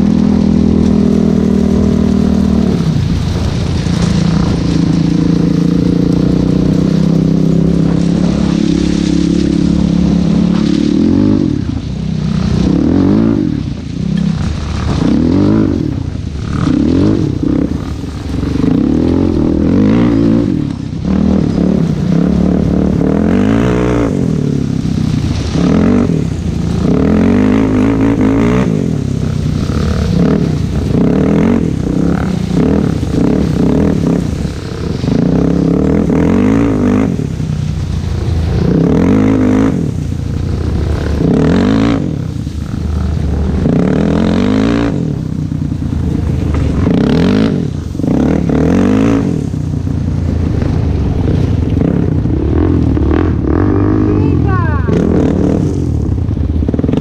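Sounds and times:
atv engine revving: 0.0s - 57.0s.

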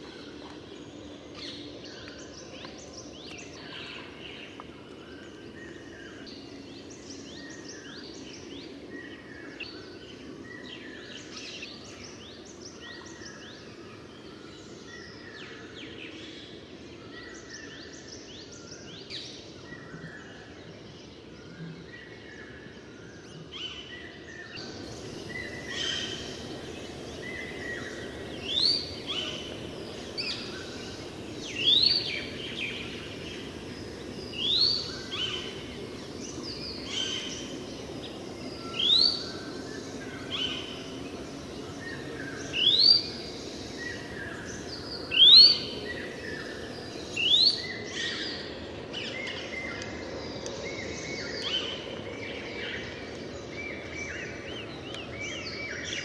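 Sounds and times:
forest bird chorus: 0.0s - 56.0s
background hiss: 24.6s - 52.0s
bird sharp rising call: 24.9s - 39.4s.

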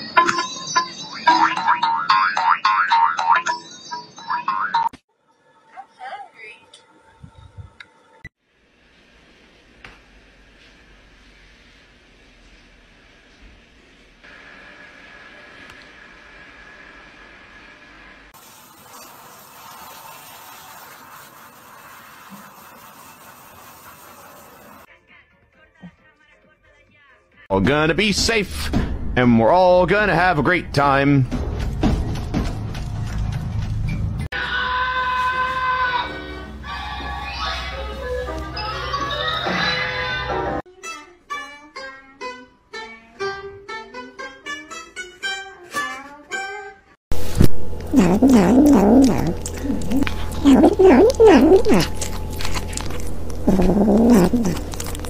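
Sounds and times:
shower sprayer water hissing: 18.4s - 24.9s.

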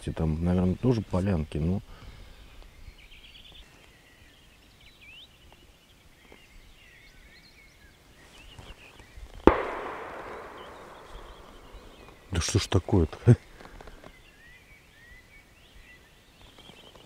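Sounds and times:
birds singing faintly: 0.0s - 17.0s
distant shotgun shot echoing: 9.5s - 12.4s.

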